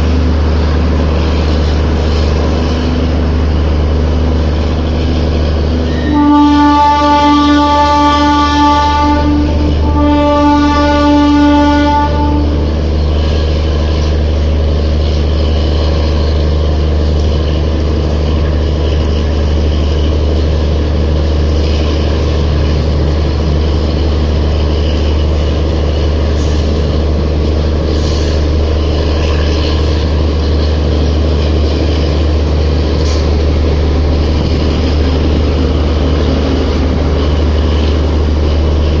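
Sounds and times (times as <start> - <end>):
low diesel engine hum: 0.0 - 39.0
train coaches rumbling: 0.0 - 39.0
train horn: 5.8 - 13.0
train wheel clicks: 27.6 - 39.0.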